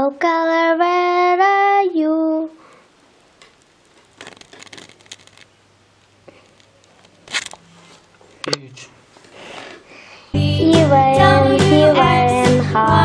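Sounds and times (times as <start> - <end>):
small crackles: 2.6 - 9.8.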